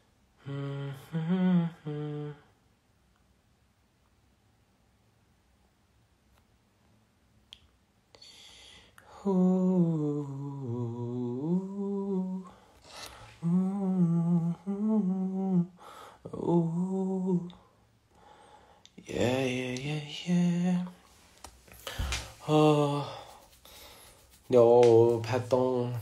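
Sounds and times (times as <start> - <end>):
man humming: 0.4 - 2.6, 9.0 - 17.7, 21.8 - 23.5.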